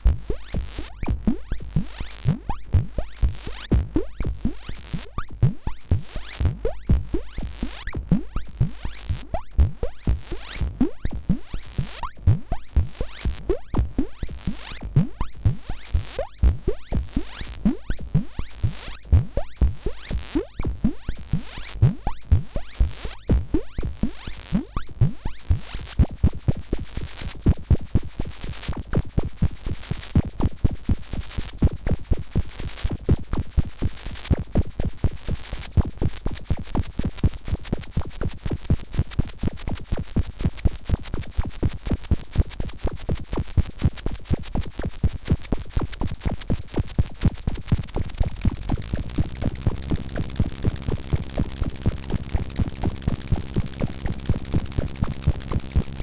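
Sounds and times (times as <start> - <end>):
pitch-swept electronic blips: 46.2 - 56.0.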